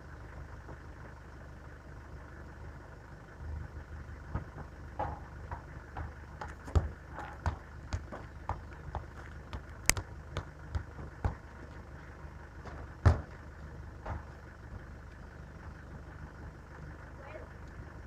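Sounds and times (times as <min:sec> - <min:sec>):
low vehicle rumble: 0:00.0 - 0:18.0
footsteps on gritty concrete: 0:04.4 - 0:13.4.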